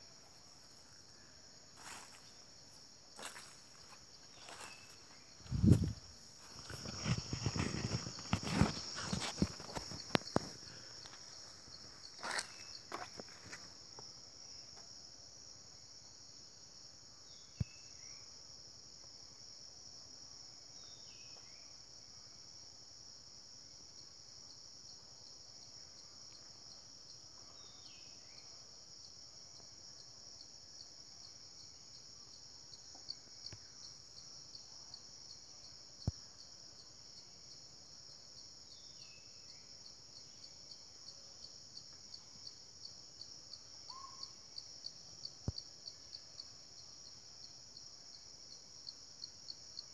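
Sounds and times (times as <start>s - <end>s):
crickets chirping: 0.0s - 49.9s.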